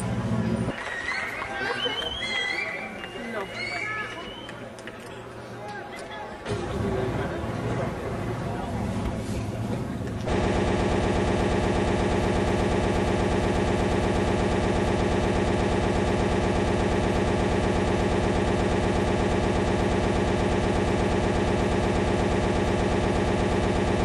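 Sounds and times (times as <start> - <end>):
buzzing audio glitch stutter: 10.3 - 24.0.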